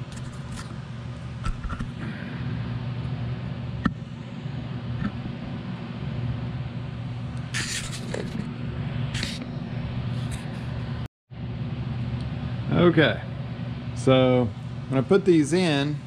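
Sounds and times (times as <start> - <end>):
machinery humming: 0.0 - 16.0
rustling scraping handling noises: 7.6 - 8.6.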